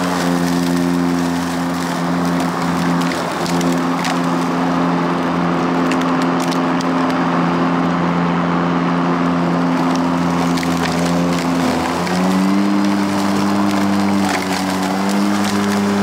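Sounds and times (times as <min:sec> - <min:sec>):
grass being chopped: 0:00.0 - 0:07.3, 0:09.4 - 0:16.0
debris ticking on mower: 0:00.0 - 0:07.5, 0:09.2 - 0:16.0
electric lawn mower hum: 0:00.0 - 0:16.0.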